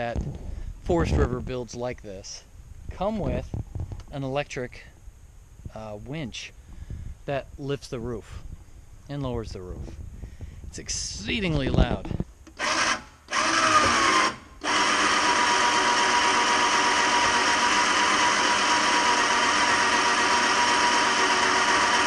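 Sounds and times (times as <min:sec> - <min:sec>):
electric winch whining: 0:12.6 - 0:22.0.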